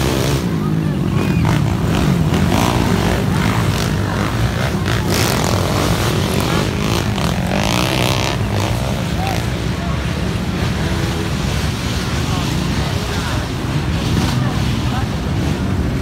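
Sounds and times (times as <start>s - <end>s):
motorcycles revving hard: 0.0s - 16.0s.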